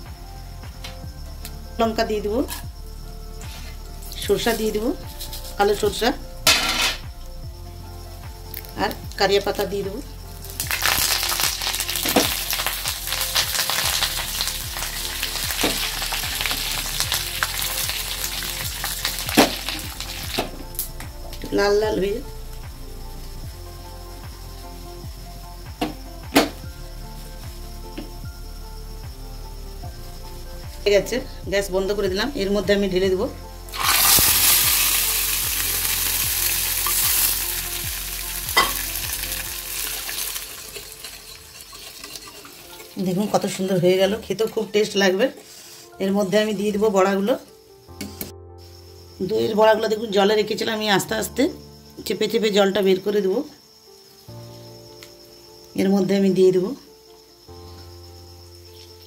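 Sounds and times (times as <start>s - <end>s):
spices sizzling in hot oil: 2.4s - 30.8s, 33.6s - 44.1s.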